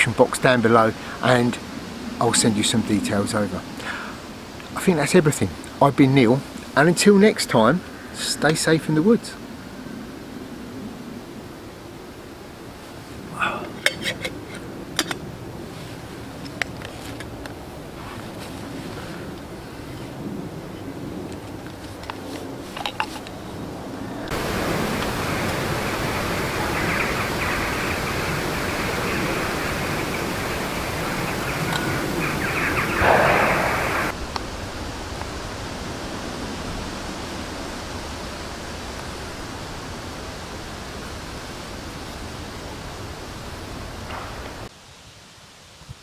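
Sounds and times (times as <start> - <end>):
steady rushing noise: 0.0 - 45.5
scraping rush: 23.9 - 34.2.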